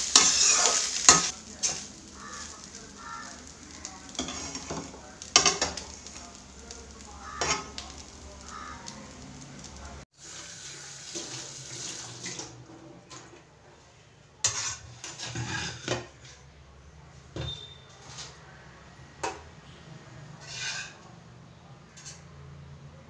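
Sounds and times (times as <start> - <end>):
metal spoon scraping rice in pan: 0.0 - 9.7, 14.4 - 16.4, 20.4 - 21.1.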